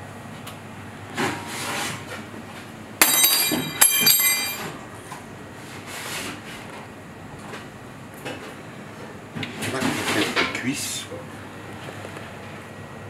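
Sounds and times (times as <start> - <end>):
metal kitchenware clanking on counter: 3.0 - 4.7.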